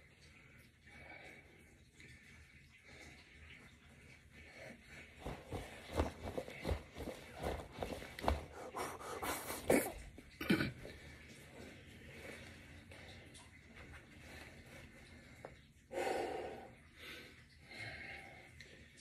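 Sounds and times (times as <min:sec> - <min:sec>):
man breathing heavily: 0:04.1 - 0:10.0, 0:14.2 - 0:19.0
man gasping: 0:07.4 - 0:10.0.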